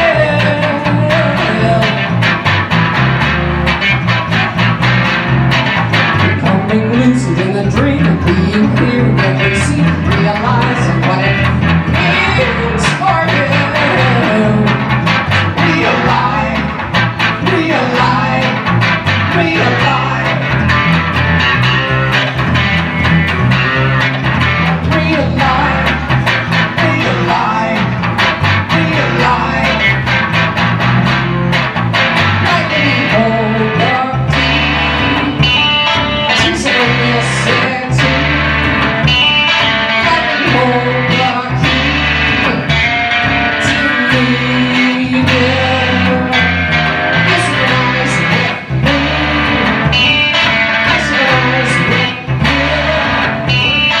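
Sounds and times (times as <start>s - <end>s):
plucked electric guitar: 0.0s - 54.0s
steady bass notes: 0.0s - 54.0s.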